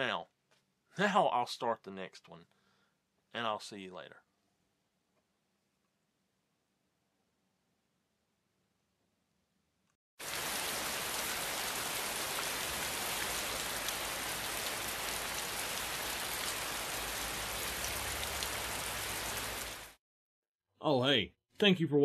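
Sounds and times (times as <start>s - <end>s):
creek water flowing: 10.2s - 20.0s.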